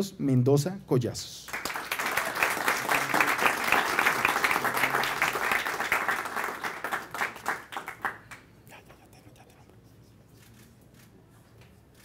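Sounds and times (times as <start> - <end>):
audience applauding: 1.5 - 8.5.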